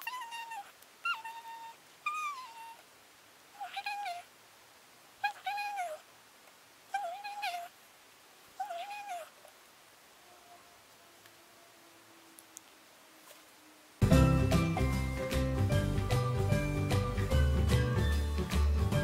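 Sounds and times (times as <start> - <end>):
cat meowing: 0.0 - 2.8, 3.6 - 4.3, 5.2 - 6.0, 6.9 - 7.7, 8.6 - 9.4.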